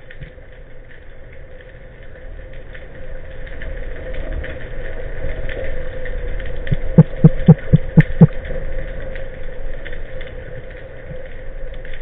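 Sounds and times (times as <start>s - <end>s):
faint crackle: 0.0s - 12.0s
low underwater thumps: 6.7s - 8.3s
steady hum: 6.7s - 8.4s.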